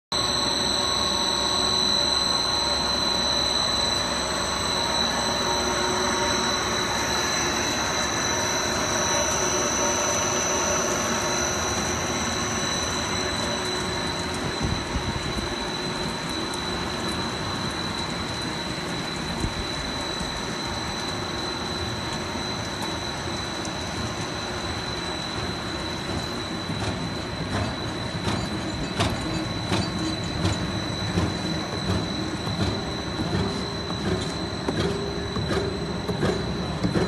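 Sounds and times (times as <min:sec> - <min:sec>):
high-pitched machine whine: 0:00.1 - 0:37.0
industrial machine noise: 0:00.1 - 0:37.0.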